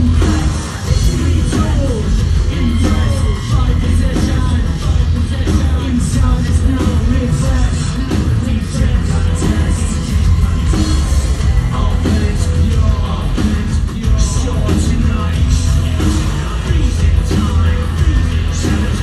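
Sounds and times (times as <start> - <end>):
heavy bass: 0.0 - 19.0
industrial band playing: 0.0 - 19.0
person singing: 0.0 - 19.0.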